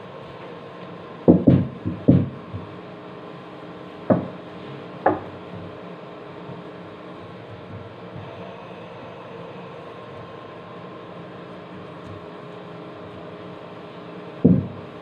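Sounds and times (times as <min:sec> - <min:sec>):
steady low hum: 0:00.0 - 0:15.0
dull knocks on sheet metal: 0:01.3 - 0:02.7, 0:04.1 - 0:04.4, 0:14.4 - 0:14.8.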